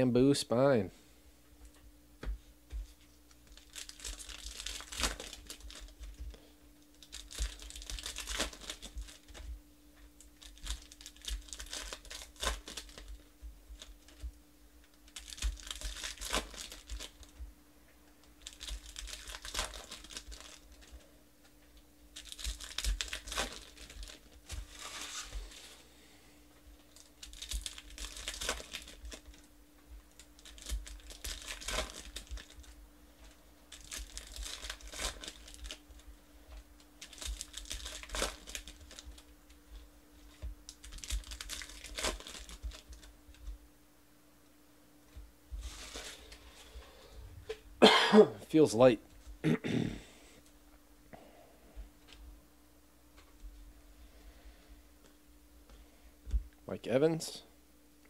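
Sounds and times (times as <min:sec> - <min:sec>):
foil wrappers crinkling and tearing: 0:03.3 - 0:17.4, 0:18.2 - 0:21.1, 0:22.1 - 0:25.8, 0:26.6 - 0:43.6, 0:45.6 - 0:46.4.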